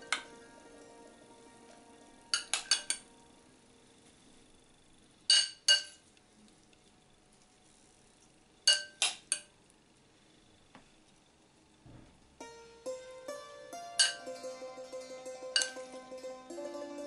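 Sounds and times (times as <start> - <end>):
metal spoon clinking on glass bowl: 8.7 - 9.4.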